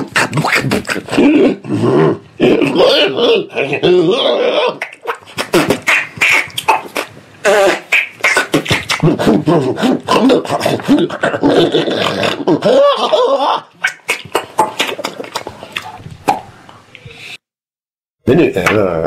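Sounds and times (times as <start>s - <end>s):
mouth clicks and pops: 0.0s - 1.2s, 4.8s - 10.9s, 13.8s - 17.3s.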